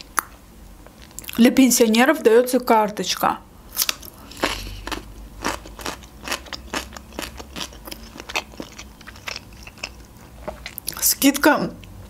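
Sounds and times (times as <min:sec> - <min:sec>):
crunchy chewing of cucumber: 0:03.7 - 0:11.0.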